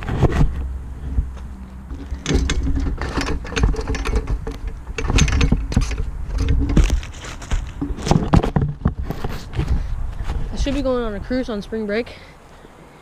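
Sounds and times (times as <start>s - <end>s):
chain-link fence rattling: 1.9s - 8.3s.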